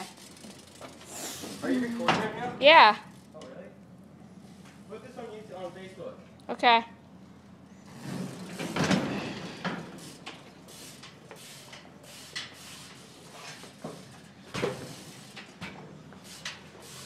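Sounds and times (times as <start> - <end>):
bike tyres rumbling on wooden floor: 0.0 - 3.2, 7.8 - 10.9, 12.5 - 17.0
knocks and clatters: 7.9 - 10.5.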